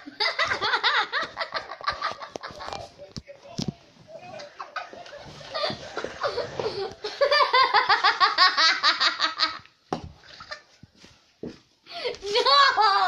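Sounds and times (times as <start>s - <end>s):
boy laughing: 12.0s - 13.0s.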